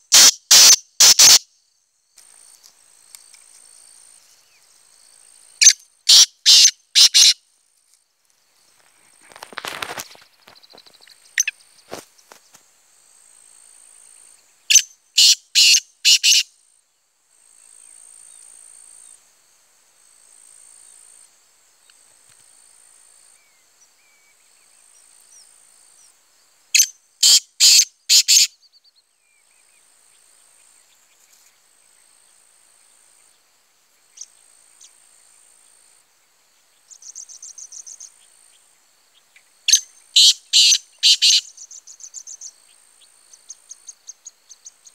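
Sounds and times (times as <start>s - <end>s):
bird calling harshly: 0.0s - 1.4s, 5.6s - 7.4s, 14.7s - 16.4s, 26.8s - 28.5s, 39.7s - 41.5s
faint high insect buzz: 0.0s - 44.9s.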